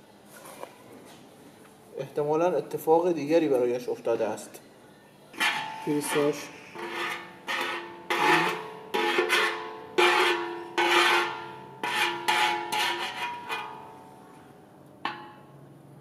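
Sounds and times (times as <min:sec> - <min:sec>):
metal rod scraping metal pan: 0:05.4 - 0:14.1.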